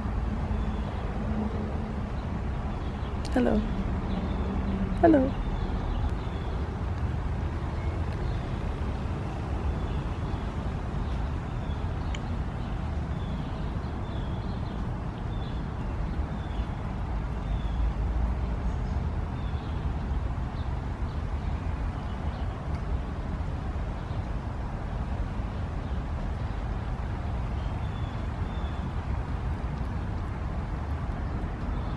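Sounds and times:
background traffic rumble: 0.0s - 31.9s
birds chirping: 2.0s - 23.1s.

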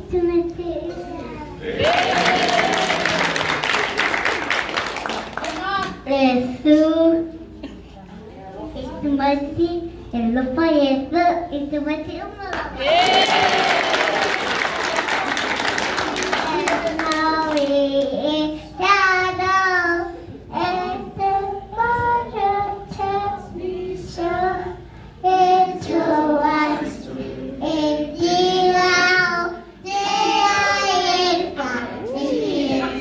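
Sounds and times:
people clapping: 1.6s - 6.0s, 12.5s - 18.2s
child singing into microphone: 16.4s - 33.0s.

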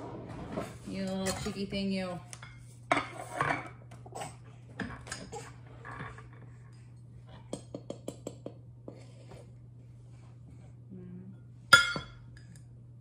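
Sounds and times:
utensils and dishes clinking: 1.0s - 1.8s.

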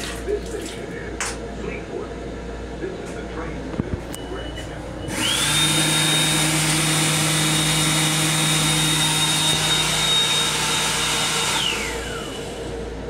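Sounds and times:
hand dryer blowing: 5.1s - 12.8s.

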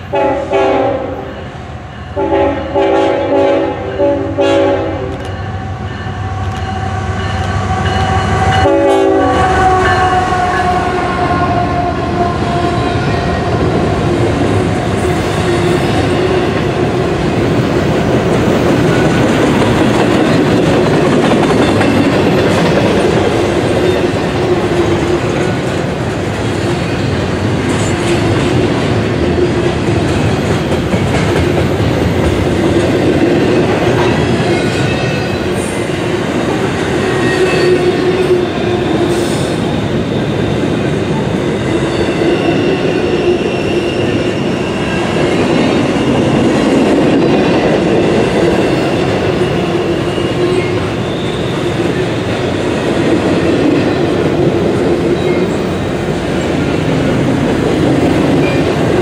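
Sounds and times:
freight train wheels rumbling: 0.0s - 59.0s
high wheel squeals: 48.5s - 52.7s.

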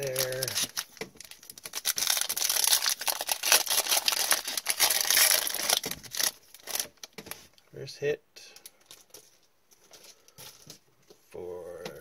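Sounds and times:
foil wrapper tearing and crinkling: 0.0s - 7.1s.

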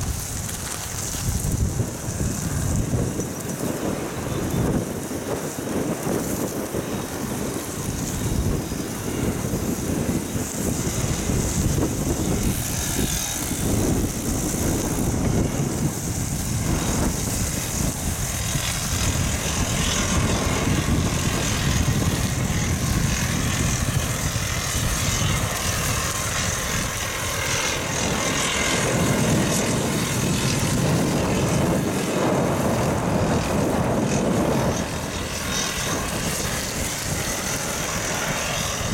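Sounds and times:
bicycle tyres on gravel: 0.0s - 27.1s
wind buffeting microphone: 0.0s - 38.9s.

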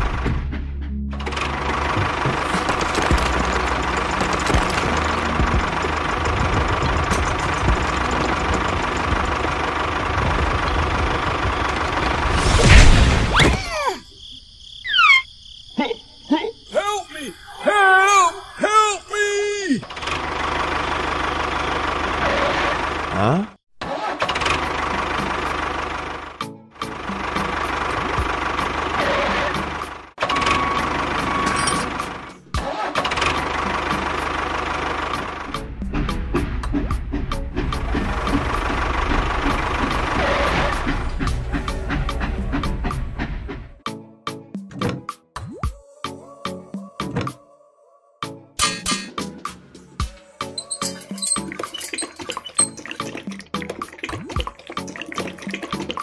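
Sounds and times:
tractor engine running: 0.0s - 13.2s, 19.8s - 23.3s, 24.0s - 43.8s
toy tractor clattering over: 1.2s - 11.9s, 30.2s - 32.3s, 50.5s - 53.2s
tyres grinding over dirt and stones: 1.2s - 13.4s, 50.5s - 53.9s
high falling squeaks: 14.8s - 15.3s, 50.5s - 52.9s.

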